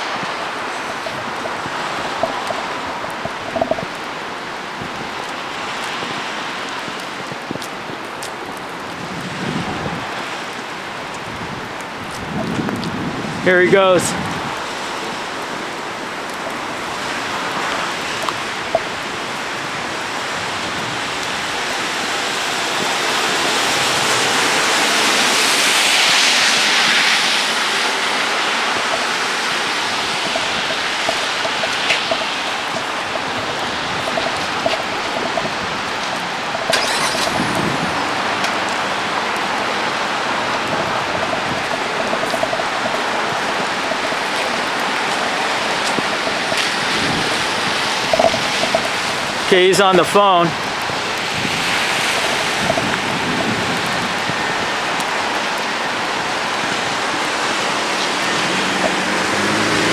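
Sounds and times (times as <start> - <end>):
rain: 0.0 - 59.9
traffic on wet roads: 0.0 - 59.9
vehicle passing: 57.2 - 59.9.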